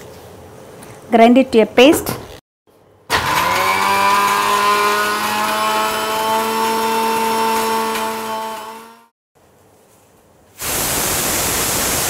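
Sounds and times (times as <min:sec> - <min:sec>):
mixer grinder motor whining: 0:03.1 - 0:09.1.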